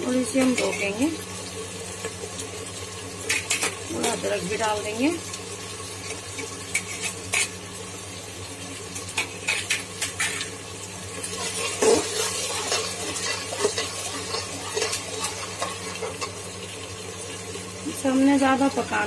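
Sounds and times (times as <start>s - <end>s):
masala sizzling in oil: 0.0s - 19.0s
metal spoon scraping a pot: 6.7s - 7.6s, 11.4s - 16.3s.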